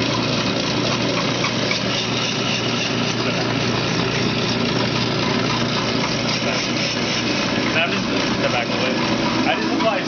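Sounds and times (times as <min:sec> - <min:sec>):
motor hum: 0:00.0 - 0:10.0
blade shaving ice: 0:00.5 - 0:10.0.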